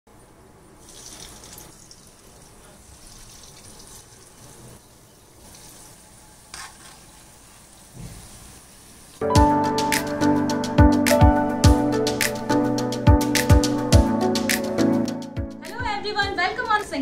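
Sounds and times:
oil sizzling and crackling: 0.8 - 9.3.

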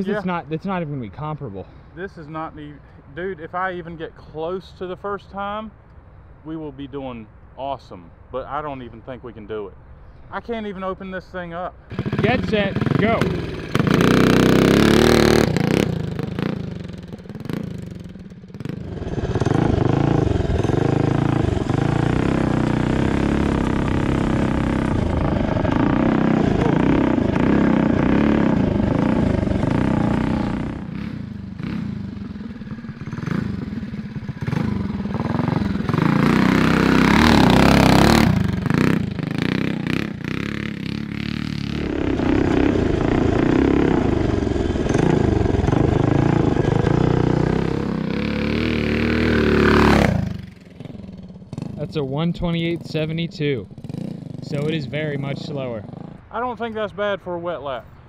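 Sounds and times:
mini bike engine revving: 11.9 - 56.3.

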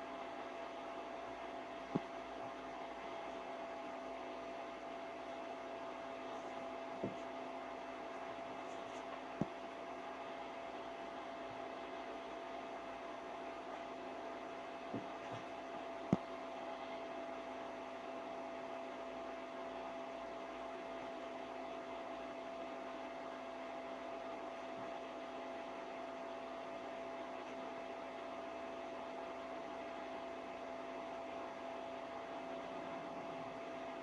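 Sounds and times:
electrical hum: 0.0 - 34.0.

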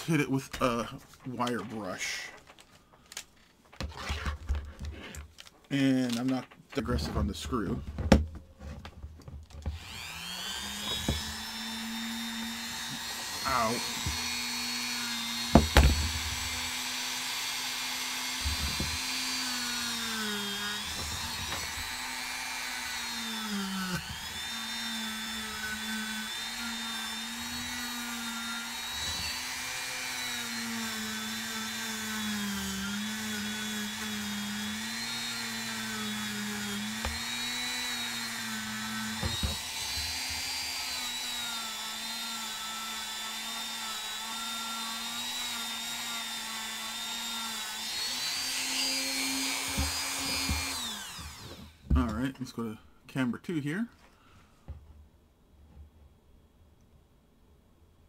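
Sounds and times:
rotary tool wire brushing screw: 9.7 - 51.7.

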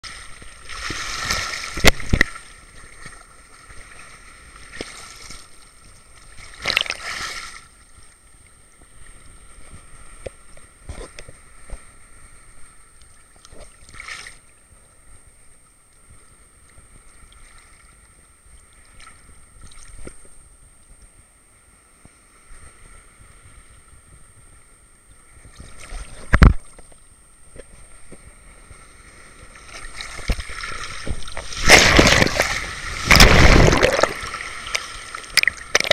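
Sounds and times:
small waves lapping on camera housing: 0.0 - 24.5, 25.1 - 35.9
faint steady high whine: 0.1 - 35.9.

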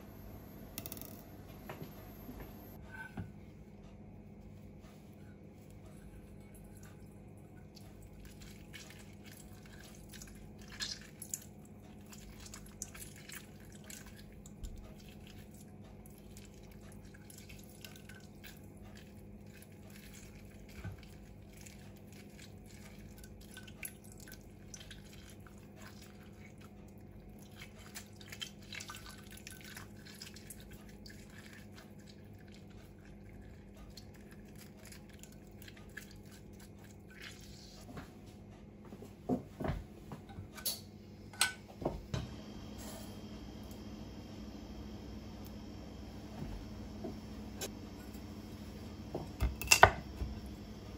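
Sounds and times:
steady low hum: 0.0 - 20.2, 32.3 - 50.9
juice dripping into metal bowl: 6.4 - 37.4.

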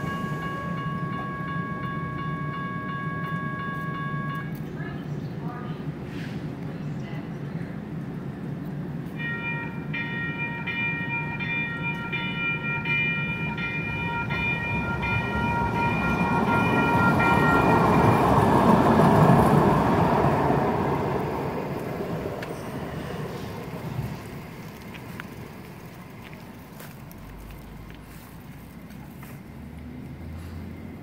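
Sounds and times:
crossing warning bell ringing: 0.0 - 6.0, 9.0 - 26.3
train rumbling past: 0.0 - 31.0.

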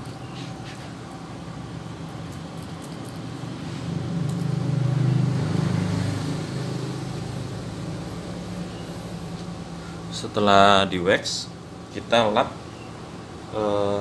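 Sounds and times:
vehicle passing by: 0.0 - 10.9.

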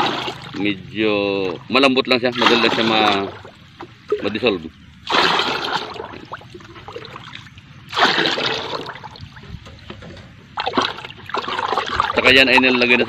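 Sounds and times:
water pouring into plastic bucket: 0.0 - 0.7, 5.0 - 9.2.

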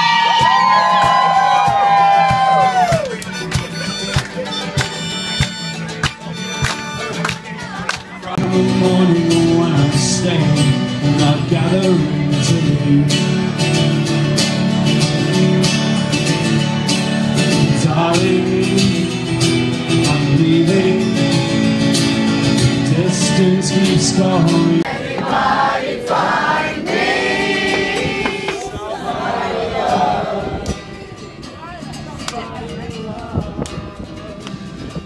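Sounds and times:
acoustic guitar strumming: 0.0 - 35.0
people singing: 22.9 - 31.3.

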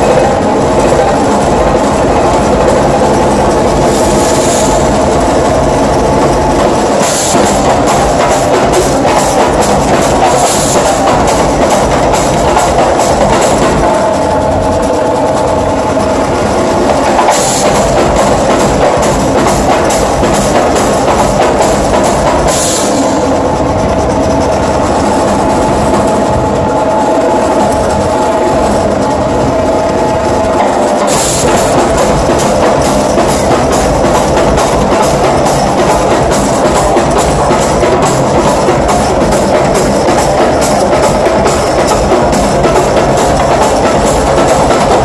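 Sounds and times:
percussion ensemble drumming: 0.0 - 26.7, 30.4 - 45.0
cymbal crashes: 3.5 - 13.9.

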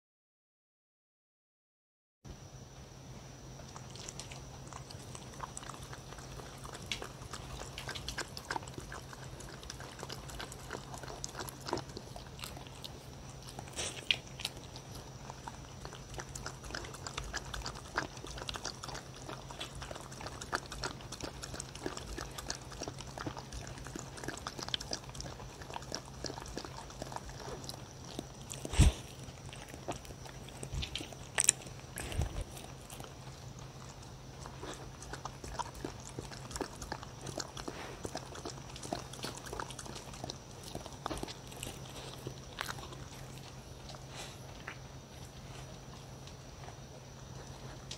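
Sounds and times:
dog licking and chewing wet food: 3.6 - 47.9.

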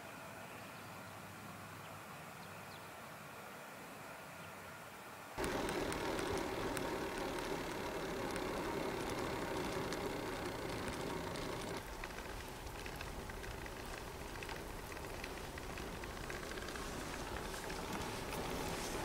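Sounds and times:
bicycle tyres rolling on asphalt: 5.4 - 19.0
fine ticking: 5.4 - 19.0.

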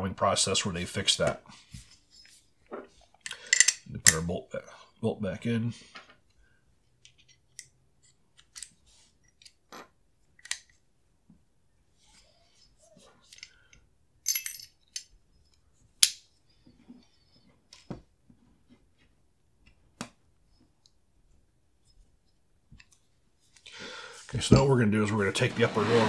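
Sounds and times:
small metal clicks: 3.2 - 4.2.

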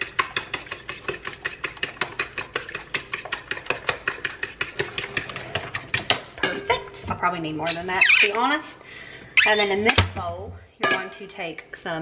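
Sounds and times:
fork beating eggs in a bowl: 0.0 - 6.4.

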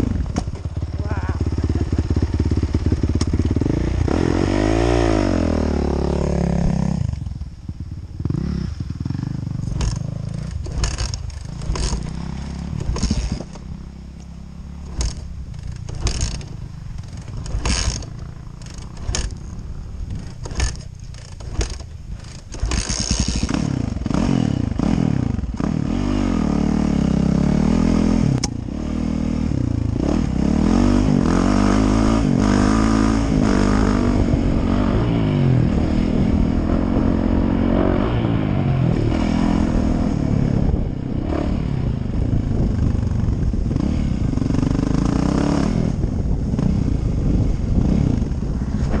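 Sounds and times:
bike rattle: 0.0 - 4.3, 7.3 - 25.7
dirt bike engine revving: 0.0 - 49.0.

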